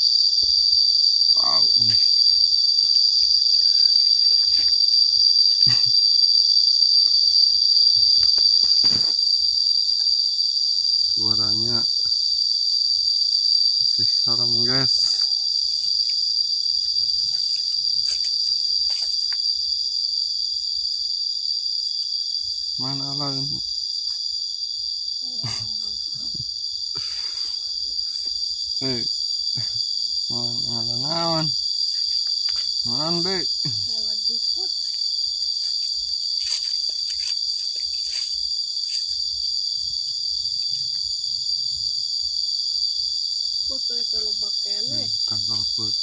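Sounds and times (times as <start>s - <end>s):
high-pitched insect drone: 0.0s - 46.0s
footsteps on leafy path: 15.0s - 19.5s, 31.8s - 33.0s, 34.7s - 39.3s
footsteps through leafy undergrowth: 35.0s - 39.1s.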